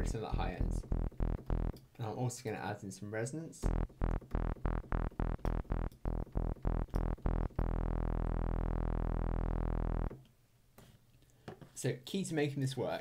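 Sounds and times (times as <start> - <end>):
synth bass notes: 0.0 - 1.8, 3.6 - 10.1.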